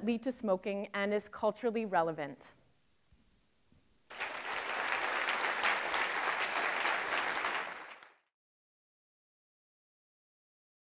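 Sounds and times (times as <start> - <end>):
audience applauding: 4.1 - 8.3.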